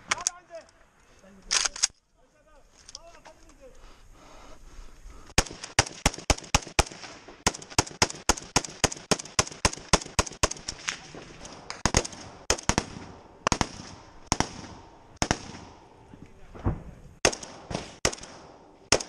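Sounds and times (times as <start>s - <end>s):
small-arms gunfire: 5.4s - 15.9s, 17.2s - 19.0s.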